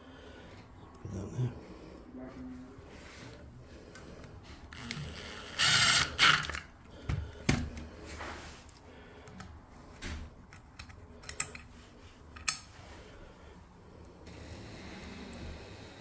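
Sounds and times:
screwdriver ratcheting clicks: 4.7 - 6.7.

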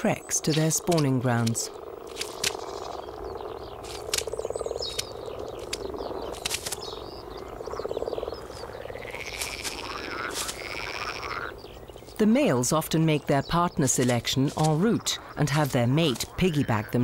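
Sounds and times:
frogs croaking: 0.0 - 17.0
clicks and rustles: 3.8 - 6.9.

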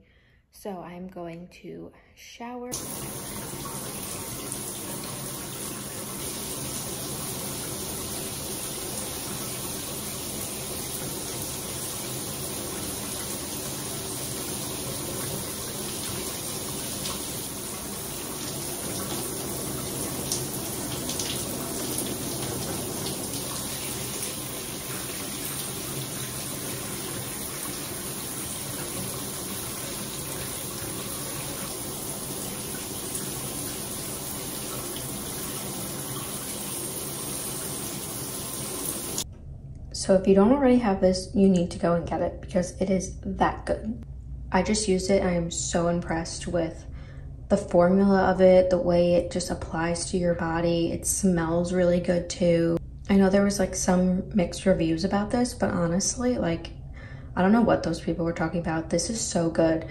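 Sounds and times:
shower water spraying: 2.8 - 39.2.

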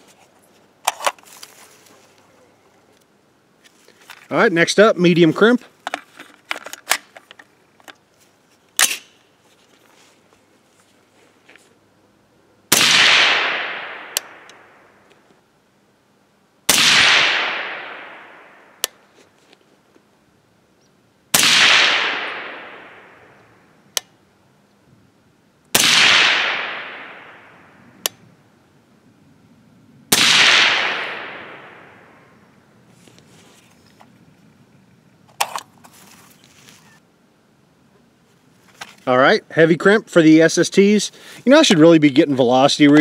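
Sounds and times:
suppressed rifle shots with echo: 12.7 - 15.0, 16.7 - 18.9, 21.3 - 23.4, 25.7 - 27.8, 30.1 - 32.3.

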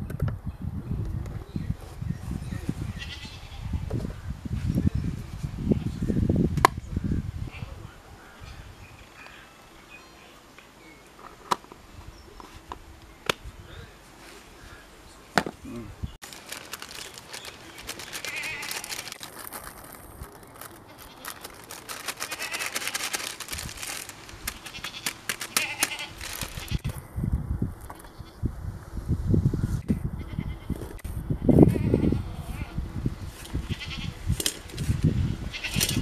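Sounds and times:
animals bleating: 3.0 - 3.8, 18.0 - 19.2, 20.6 - 26.9, 31.4 - 32.8, 33.7 - 34.2
plastic packet crinkling: 16.2 - 26.9
sharp clicks: 24.3 - 26.7.

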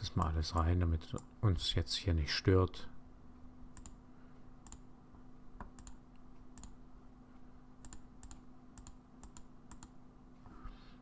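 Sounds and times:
faint low hum: 0.0 - 11.0
computer mouse clicks: 3.8 - 4.0, 4.6 - 4.9, 5.6 - 6.8, 7.8 - 10.0.

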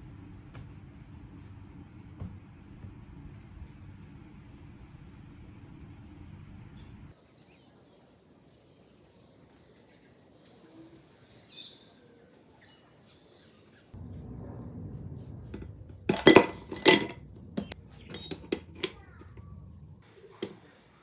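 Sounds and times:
low rumble: 14.0 - 18.1, 19.0 - 20.0
bird chirps: 17.6 - 20.4.

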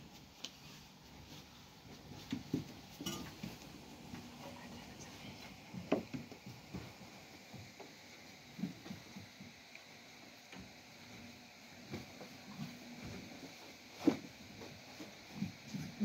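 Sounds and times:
metal pan and tray clinking: 3.0 - 3.4.

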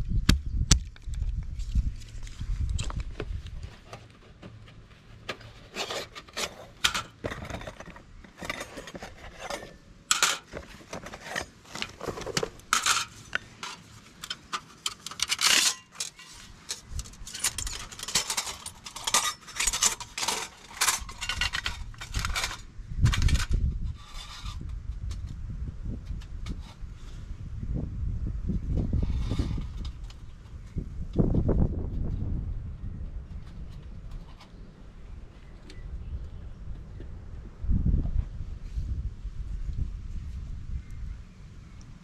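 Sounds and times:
steel panels clinking and scraping: 3.6 - 25.2.

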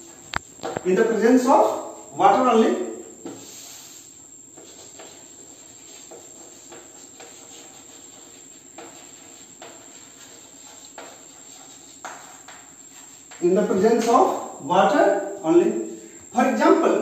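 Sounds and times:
steady low hiss: 0.0 - 17.0
chalk scratching on chalkboard: 3.2 - 14.6.

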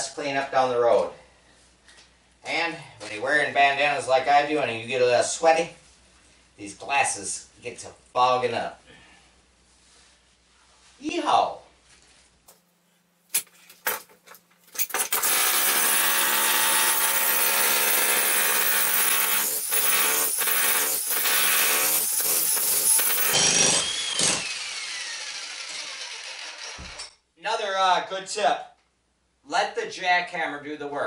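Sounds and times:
electric jackhammer chiselling concrete: 14.8 - 27.0
motor winding down whine: 23.3 - 27.0.

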